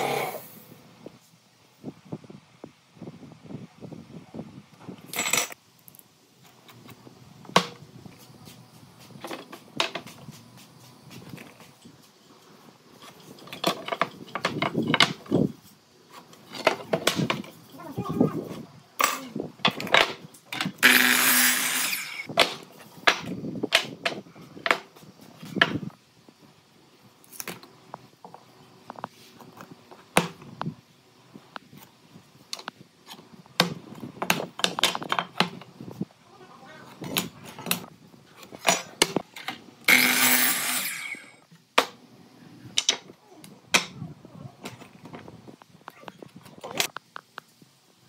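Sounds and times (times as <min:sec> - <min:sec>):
wood and tools knocking: 0:13.0 - 0:15.5.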